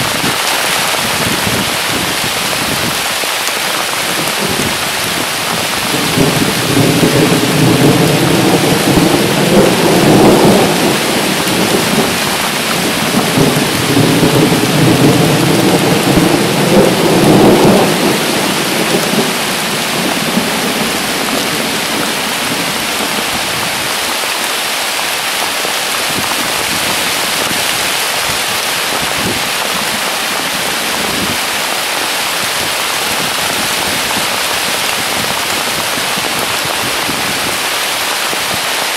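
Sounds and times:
heavy rain pouring: 0.0s - 38.9s
thunder rumble: 4.1s - 24.1s.

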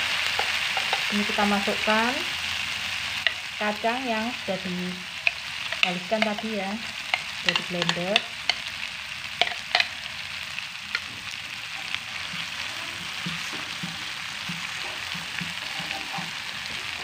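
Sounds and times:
spice paste sizzling in a pan: 0.0s - 17.0s
spatula stirring scrapes: 12.0s - 17.0s.

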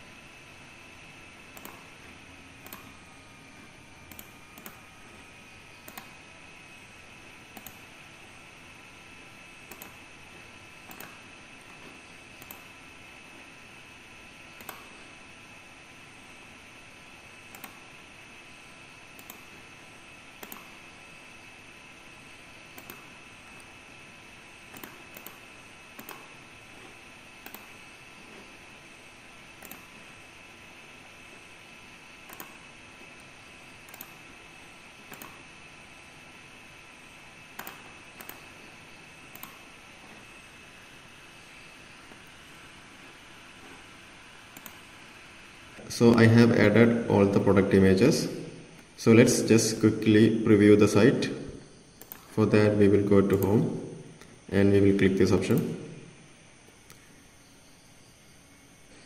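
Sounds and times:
computer mouse clicks: 1.5s - 1.9s, 2.6s - 2.9s, 4.1s - 4.8s, 5.8s - 6.2s, 7.5s - 7.9s, 9.6s - 10.0s, 10.8s - 11.2s, 12.4s - 12.7s, 14.6s - 14.9s, 17.5s - 17.8s, 19.1s - 19.5s, 20.4s - 20.8s, 22.7s - 23.7s, 24.7s - 26.3s, 27.4s - 27.8s, 29.6s - 29.9s, 32.2s - 32.6s, 33.2s - 34.2s, 35.1s - 35.4s, 37.6s - 38.5s, 39.3s - 40.2s, 44.5s - 44.9s, 52.0s - 52.3s
computer mouse button clicks: 1.6s - 1.8s, 2.6s - 2.9s, 4.1s - 4.8s, 9.7s - 10.0s, 14.6s - 14.9s, 20.4s - 20.7s, 24.8s - 25.4s, 26.0s - 26.2s, 27.4s - 27.7s, 32.3s - 32.6s, 35.1s - 35.4s, 44.6s - 44.8s
thin high whine: 36.2s - 59.0s.

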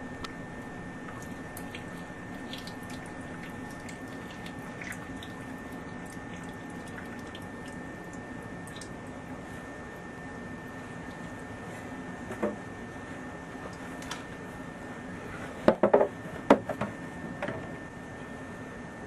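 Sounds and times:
steady pump hum: 0.0s - 19.0s
water dripping and trickling: 0.6s - 9.0s.

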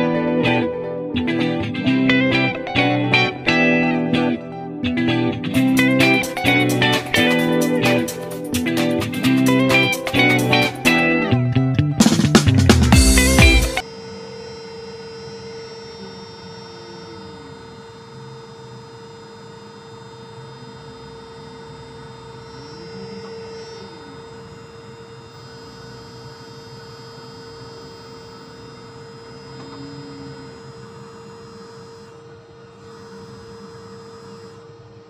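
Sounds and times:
steady machinery hum: 0.0s - 11.4s, 12.9s - 35.0s
faint gliding whine: 13.8s - 35.0s.

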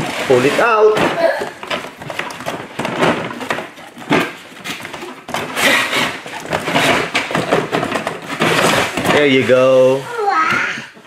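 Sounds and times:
cardboard packaging rustling: 0.0s - 11.0s.

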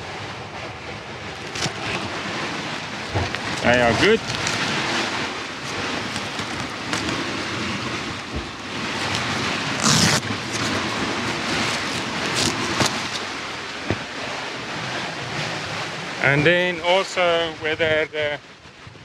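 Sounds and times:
wind and sea rushing: 0.0s - 19.0s
fabric cover rustling: 3.2s - 8.0s, 8.7s - 13.3s.

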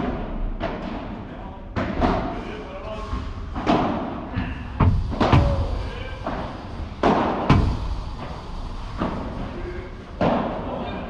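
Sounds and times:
ball bouncing off court and walls: 0.0s - 1.2s
rackets striking ball: 4.8s - 8.0s.

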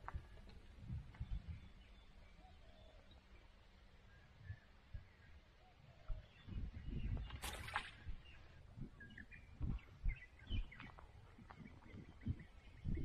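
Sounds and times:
wind buffeting microphone: 0.0s - 2.1s, 6.0s - 13.0s
small birds chirping: 0.1s - 13.0s.

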